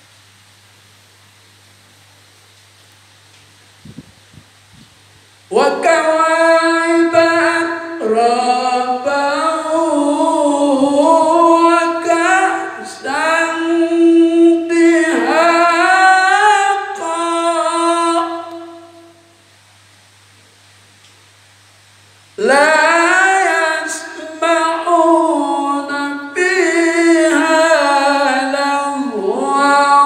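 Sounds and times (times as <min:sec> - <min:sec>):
man chanting melodic recitation: 0:05.5 - 0:19.2, 0:22.4 - 0:30.0.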